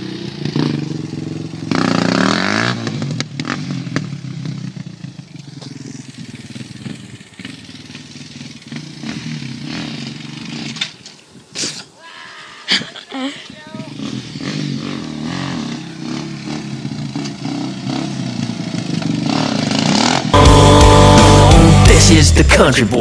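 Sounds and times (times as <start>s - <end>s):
quad engine revving: 0.0s - 11.0s, 13.7s - 23.0s.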